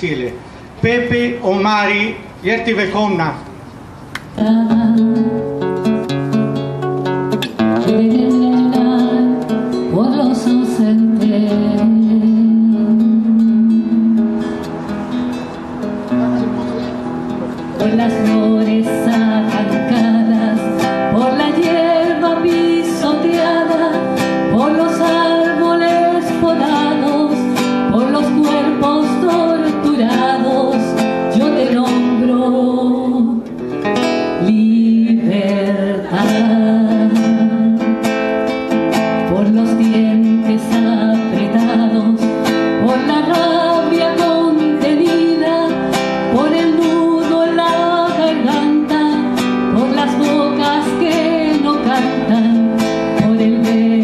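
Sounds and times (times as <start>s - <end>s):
woman singing into a microphone: 4.3s - 5.6s, 7.8s - 14.6s, 17.8s - 33.6s, 34.3s - 38.3s, 39.2s - 54.0s
strummed acoustic guitar: 4.3s - 54.0s.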